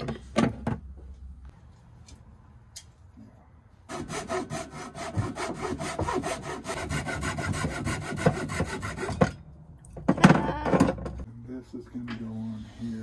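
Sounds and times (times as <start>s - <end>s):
hand saw cutting plastic pipe: 3.9s - 9.3s.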